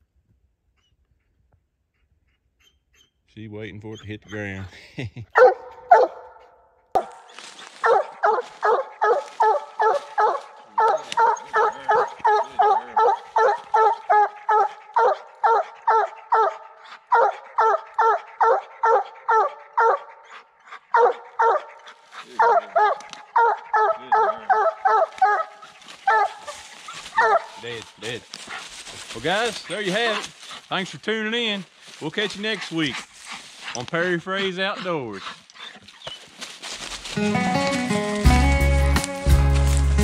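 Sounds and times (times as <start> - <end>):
dog barking rapidly: 5.4 - 6.4, 7.0 - 30.7.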